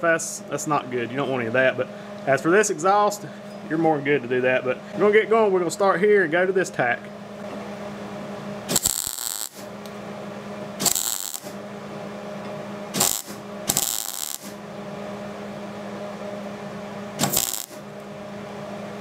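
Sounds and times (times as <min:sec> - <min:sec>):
steady low hum: 0:00.0 - 0:19.0
welding arc crackling: 0:08.7 - 0:09.7, 0:10.8 - 0:11.6, 0:13.0 - 0:14.6, 0:17.2 - 0:17.8.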